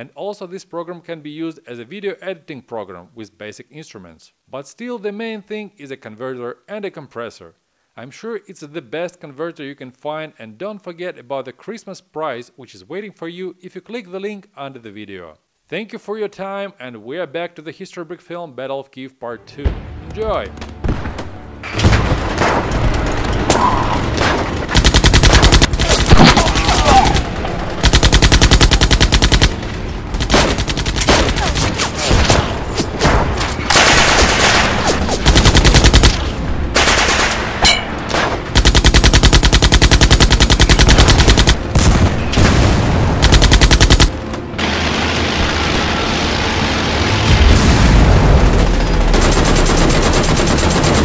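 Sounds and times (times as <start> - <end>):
machine-gun fire bursts: 21.8 - 32.6, 33.7 - 37.5, 38.1 - 42.2, 43.1 - 45.9, 48.5 - 51.0
single gunshots: 23.5 - 27.2.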